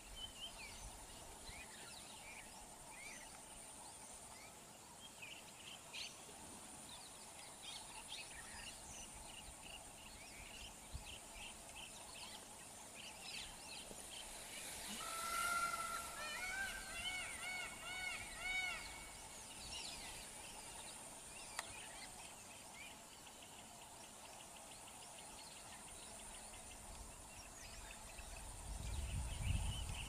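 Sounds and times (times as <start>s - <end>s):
small birds chirping: 16.6s - 30.0s.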